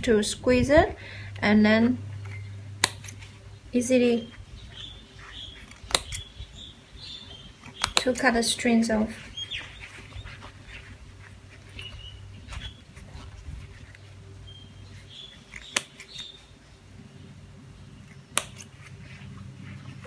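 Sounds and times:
scissors snipping strings: 0:02.2 - 0:03.4, 0:05.6 - 0:06.3, 0:07.6 - 0:08.4, 0:15.3 - 0:16.3, 0:18.0 - 0:19.3.

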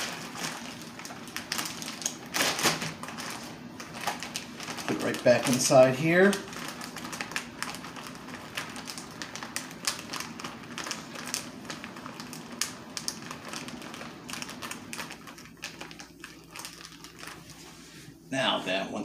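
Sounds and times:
plastic crinkling: 0:00.0 - 0:17.9
plastic bag zip seal clicking: 0:01.3 - 0:16.1.

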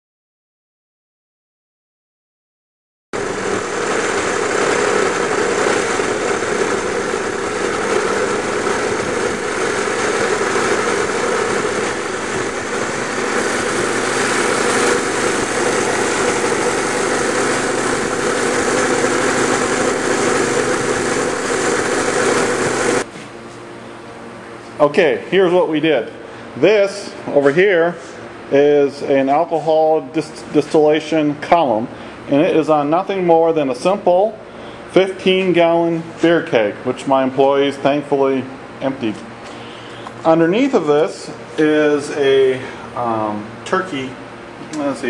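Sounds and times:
small gasoline engine running: 0:03.2 - 0:23.1.

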